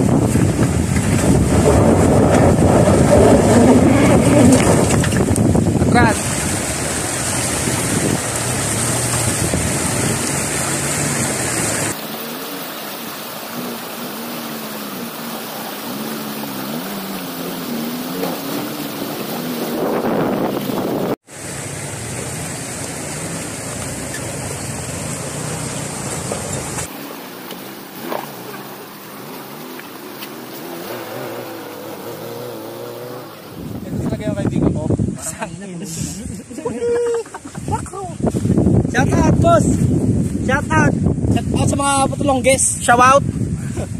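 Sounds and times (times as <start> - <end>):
wind on microphone: 0.0 - 12.0, 15.9 - 21.2, 30.7 - 35.4, 37.4 - 43.9
suv engines revving: 0.0 - 35.1
water rushing and splashing: 0.0 - 43.9.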